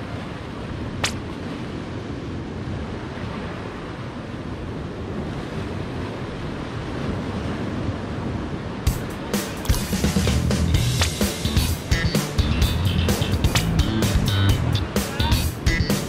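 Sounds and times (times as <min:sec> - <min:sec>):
surf washing against rocks: 0:00.0 - 0:16.0
sharp click: 0:01.0 - 0:01.2, 0:11.0 - 0:11.2.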